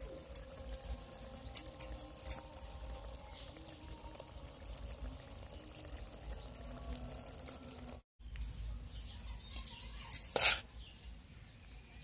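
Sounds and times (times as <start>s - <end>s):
curry bubbling in a wok: 0.0s - 8.0s.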